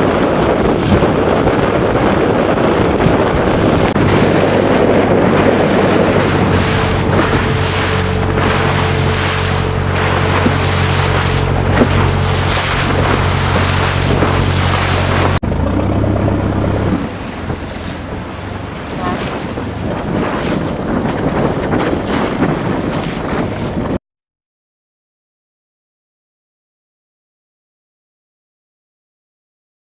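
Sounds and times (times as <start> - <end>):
boat engine humming: 0.0 - 24.0
waves rushing and splashing: 0.0 - 24.0
wind buffeting microphone: 0.0 - 24.0.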